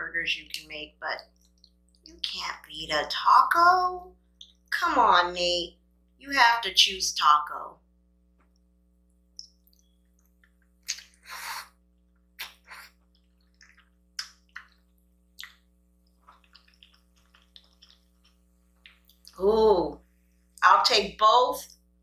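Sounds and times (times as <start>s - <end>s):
wet mouth smacks: 9.4s - 11.2s, 12.4s - 19.4s.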